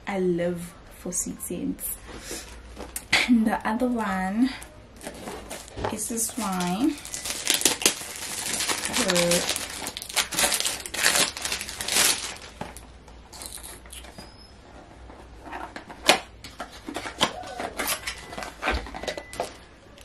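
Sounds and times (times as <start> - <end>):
plastic wrapping crinkling: 5.0 - 14.2.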